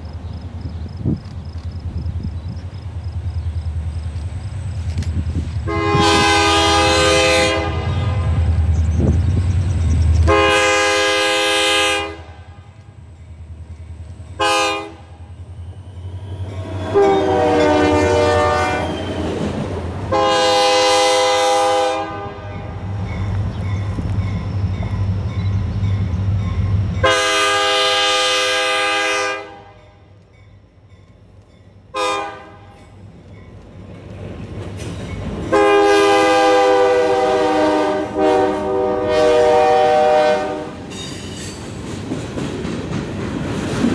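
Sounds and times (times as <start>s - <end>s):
locomotive air horn blasts: 5.6s - 8.6s, 10.3s - 12.8s, 14.4s - 15.2s, 16.8s - 19.2s, 20.1s - 22.9s, 27.0s - 30.0s, 31.9s - 32.7s, 35.5s - 41.0s.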